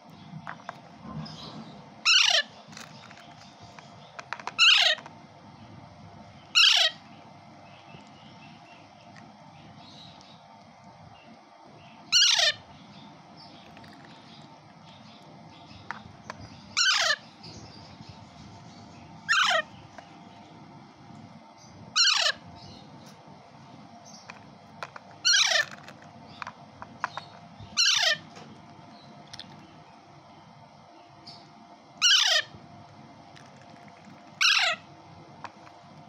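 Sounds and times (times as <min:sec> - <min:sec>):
parakeet chick harsh calls: 0:01.2 - 0:03.3, 0:04.4 - 0:05.0, 0:06.4 - 0:07.2, 0:12.0 - 0:12.8, 0:16.5 - 0:17.9, 0:19.2 - 0:19.8, 0:21.9 - 0:22.9, 0:25.2 - 0:26.4, 0:27.1 - 0:28.4, 0:32.0 - 0:32.6, 0:34.3 - 0:34.9.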